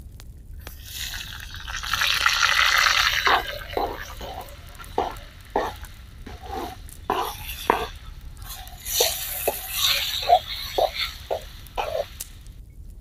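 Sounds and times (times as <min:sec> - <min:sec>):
tomatoes sizzling in pan: 0:00.6 - 0:12.5
ladle scraping cutting board: 0:01.9 - 0:12.2.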